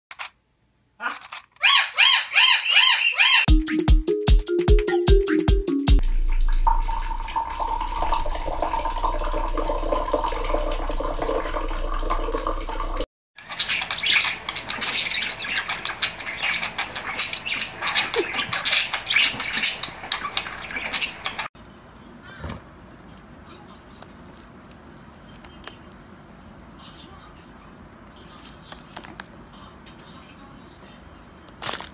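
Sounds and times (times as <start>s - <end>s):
budgerigars chattering: 1.6s - 3.5s, 13.5s - 21.5s
water pouring from a bottle: 6.0s - 13.0s.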